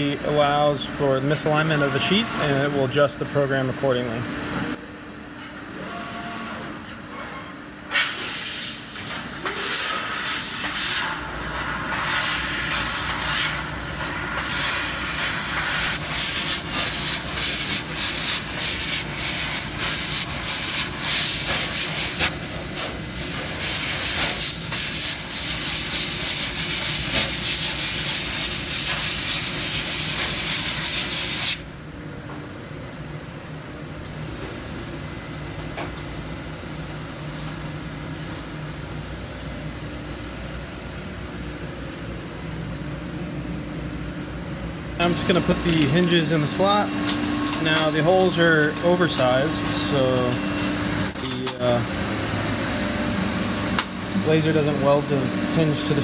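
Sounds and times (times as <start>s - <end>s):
steady machine hum: 0.0s - 56.0s
laser cutting hiss with crackles: 7.9s - 22.3s.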